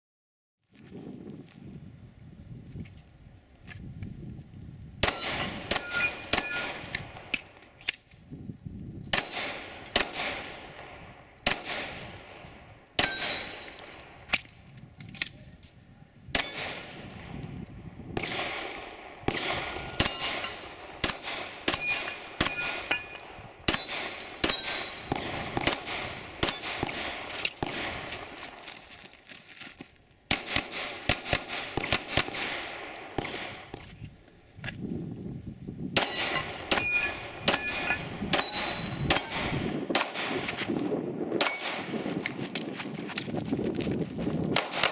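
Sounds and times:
steel targets clanging: 0:05.0 - 0:07.0, 0:13.0 - 0:14.0, 0:20.0 - 0:20.8, 0:21.7 - 0:25.1, 0:36.0 - 0:39.4
pistol shots: 0:05.0 - 0:08.0, 0:09.1 - 0:12.4, 0:13.0 - 0:14.5, 0:16.3 - 0:17.3, 0:18.2 - 0:28.6, 0:30.3 - 0:33.8, 0:36.0 - 0:40.7, 0:41.4 - 0:42.0, 0:44.6 - 0:44.9.

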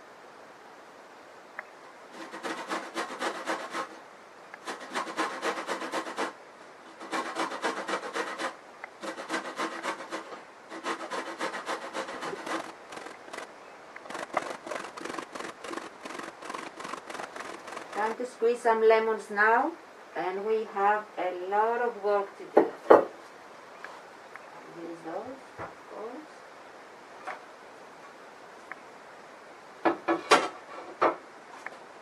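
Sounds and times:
lemon scraping on a metal grater: 0:02.1 - 0:04.0, 0:04.6 - 0:13.5, 0:14.1 - 0:18.2.

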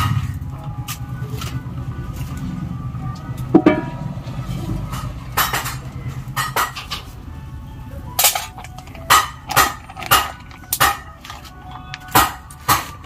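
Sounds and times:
music with sharp percussive hits: 0:03.5 - 0:07.1, 0:08.2 - 0:11.2, 0:12.1 - 0:13.0.

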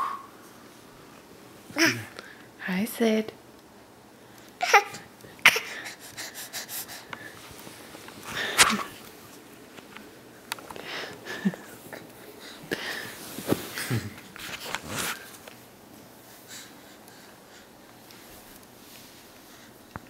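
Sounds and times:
baby laughing and gasping: 0:04.6 - 0:07.4.

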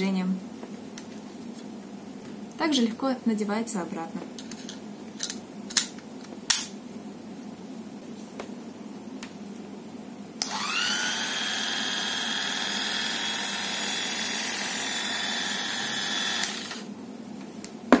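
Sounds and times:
electric clipper motor whining: 0:10.4 - 0:16.9.

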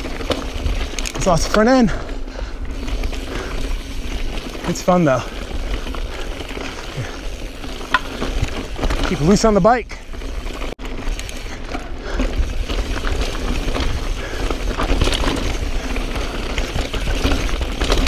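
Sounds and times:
tyres crunching over loose rock: 0:02.7 - 0:18.0
bike knocks and rattles: 0:04.2 - 0:18.0.

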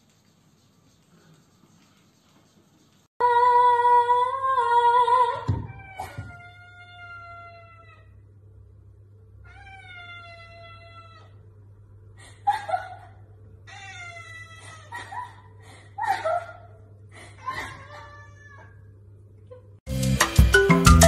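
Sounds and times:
cat meowing: 0:05.7 - 0:08.1, 0:09.4 - 0:11.4, 0:13.7 - 0:14.9, 0:17.6 - 0:18.8.

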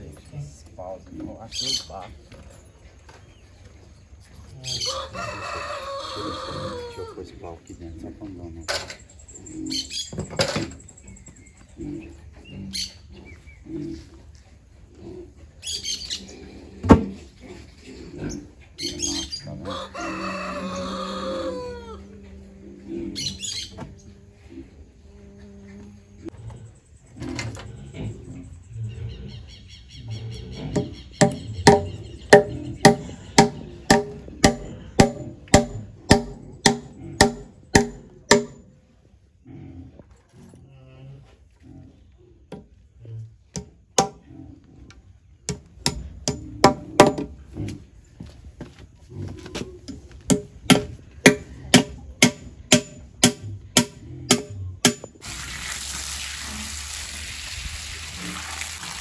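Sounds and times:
rooster crowing: 0:04.8 - 0:07.2, 0:19.6 - 0:22.1.

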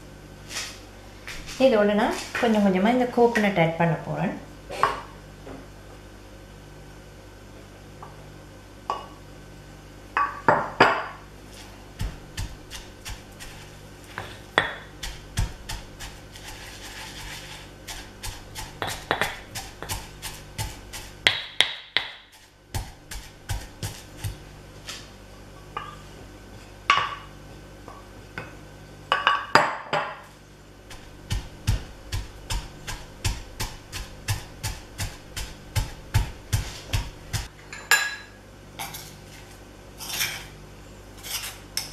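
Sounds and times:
pestle pounding in mortar: 0:11.9 - 0:24.4, 0:30.8 - 0:37.5.

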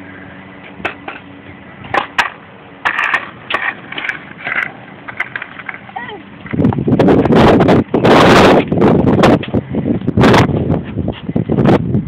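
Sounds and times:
skateboard scraping and rolling: 0:00.3 - 0:11.8
skateboard clacks: 0:01.9 - 0:07.4.

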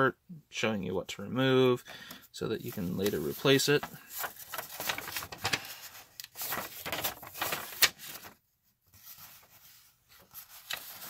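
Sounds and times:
paper rustling and crinkling: 0:02.4 - 0:11.0.

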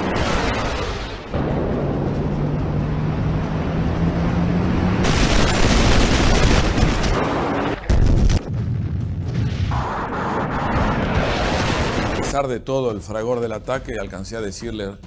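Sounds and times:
roar with rising low tone: 0:01.3 - 0:05.2
heavy bomb explosion: 0:05.0 - 0:12.3.

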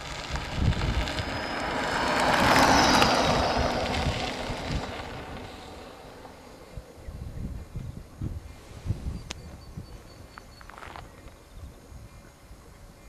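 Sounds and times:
electric scooter motor whine: 0:00.0 - 0:08.0
tyre noise on road: 0:00.0 - 0:11.6.

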